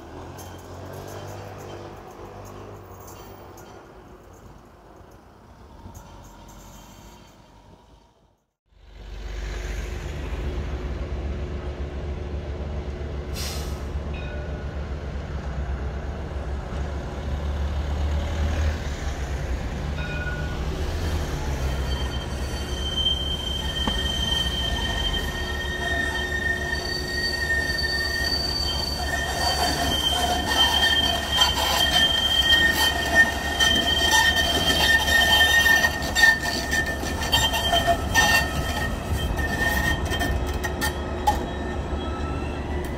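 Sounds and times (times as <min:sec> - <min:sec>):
steel wheel squeal: 0:00.0 - 0:04.4, 0:05.8 - 0:07.6, 0:21.0 - 0:42.9
wheels clicking on track: 0:00.0 - 0:07.4, 0:23.8 - 0:41.5
tram rumbling on rails: 0:00.0 - 0:42.9.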